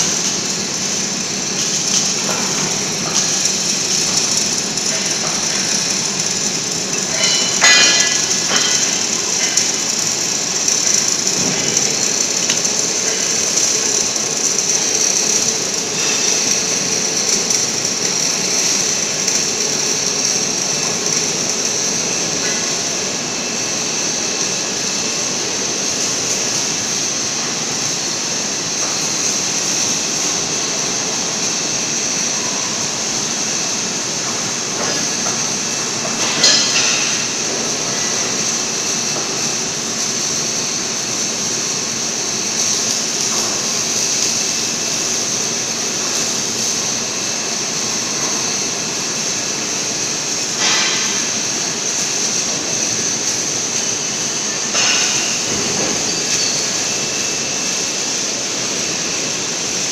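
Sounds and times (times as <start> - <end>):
welding machine hissing: 0.0 - 59.9.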